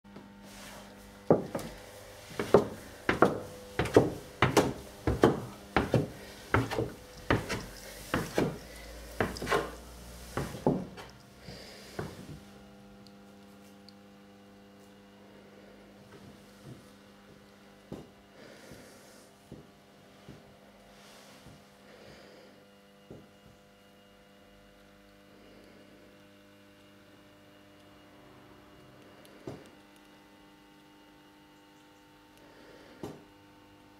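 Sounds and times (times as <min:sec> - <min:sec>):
faint steady hum: 0:00.1 - 0:33.9
footsteps on wooden stairs: 0:01.2 - 0:12.4.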